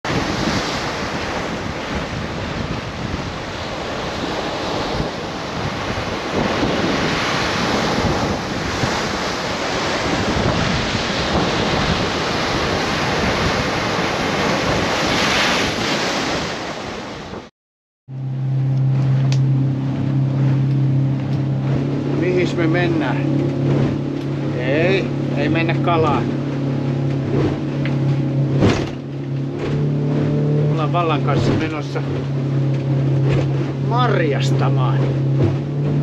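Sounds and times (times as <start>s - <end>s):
motorboat engine humming: 0.0s - 17.5s, 18.1s - 36.0s
sea waves breaking on rocks: 0.0s - 17.5s
wind buffeting microphone: 0.0s - 17.5s.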